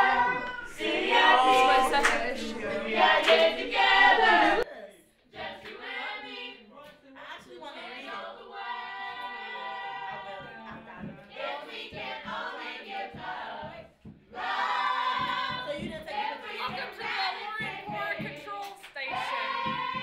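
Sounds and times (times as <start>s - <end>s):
young voices singing together: 0.0s - 4.7s, 5.3s - 6.8s, 7.6s - 20.0s
low thumping beat: 19.2s - 20.0s.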